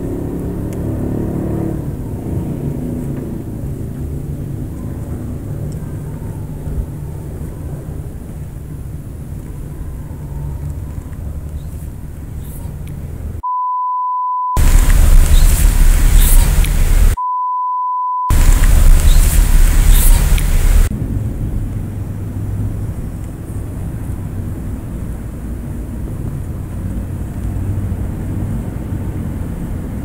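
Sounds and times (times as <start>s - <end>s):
electronic beep: 13.4s - 20.4s
low rumble with hiss: 14.6s - 17.2s, 18.3s - 30.0s.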